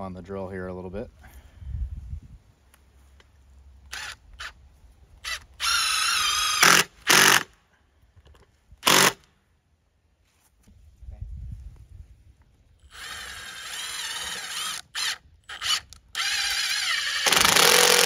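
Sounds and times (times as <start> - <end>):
impact driver driving screw: 5.2 - 7.5, 8.8 - 9.2, 12.9 - 18.0.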